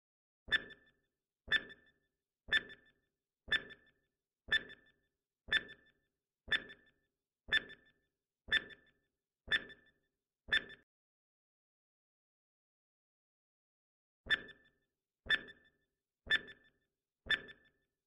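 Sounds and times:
timer ticking: 0:01.5 - 0:01.9, 0:02.5 - 0:08.9, 0:09.5 - 0:09.8, 0:15.3 - 0:15.6, 0:16.3 - 0:16.7, 0:17.3 - 0:17.7.

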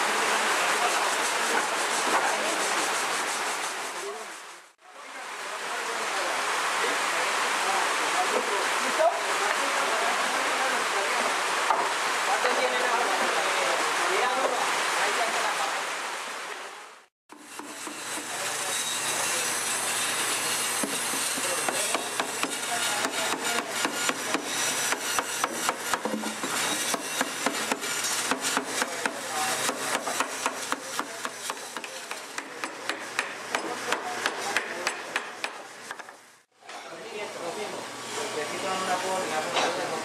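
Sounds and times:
rough scraping on wood: 0:00.8 - 0:04.7.

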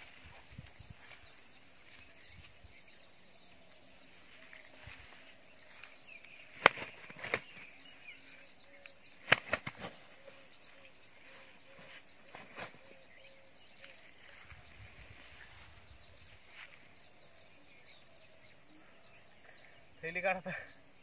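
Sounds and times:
faint bird chirps: 0:00.0 - 0:21.0
sharp slaps: 0:06.5 - 0:07.6, 0:09.2 - 0:10.0.

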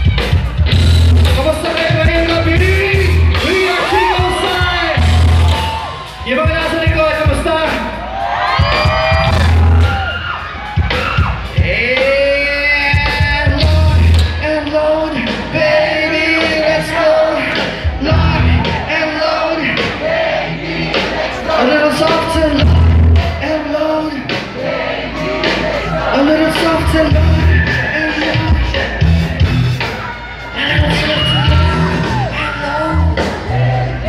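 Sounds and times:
heavy low drum hits: 0:00.0 - 0:07.5
live rock band playing: 0:00.0 - 0:34.0
person singing: 0:25.1 - 0:29.4, 0:30.5 - 0:34.0.

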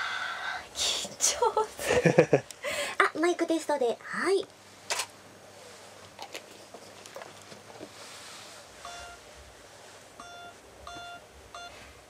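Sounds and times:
short electronic beeps: 0:08.8 - 0:09.2, 0:10.2 - 0:11.8.

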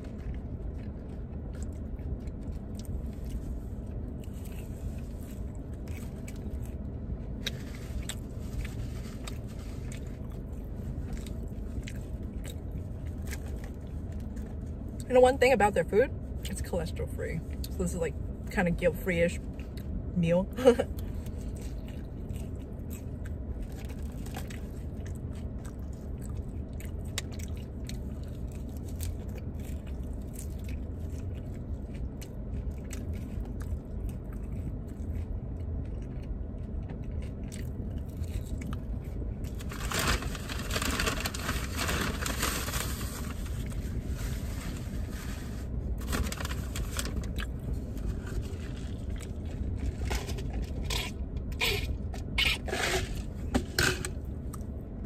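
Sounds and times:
crunching and chewing fries: 0:00.0 - 0:16.7, 0:19.3 - 0:55.0
steady low hum: 0:00.0 - 0:55.0
fork scraping on plastic: 0:52.4 - 0:54.1.

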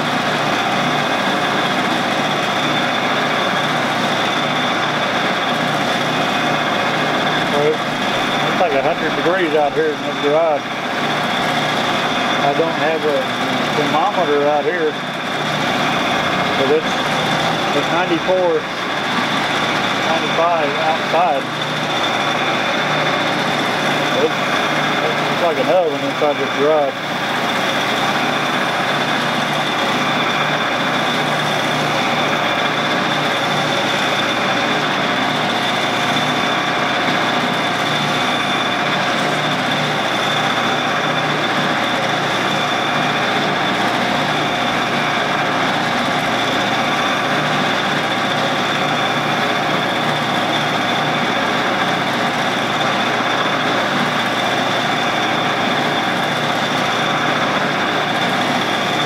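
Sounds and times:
lathe motor running with whine: 0:00.0 - 0:59.0.

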